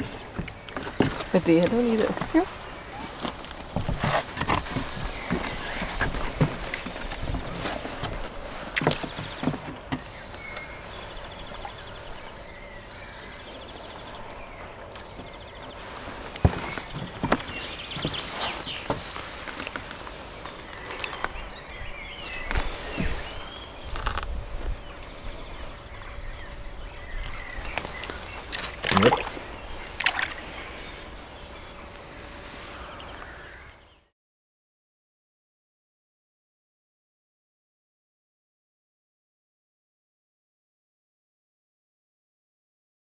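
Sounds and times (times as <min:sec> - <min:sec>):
knocks and rustles in reeds: 0:00.0 - 0:33.6
water splashing: 0:27.2 - 0:31.2.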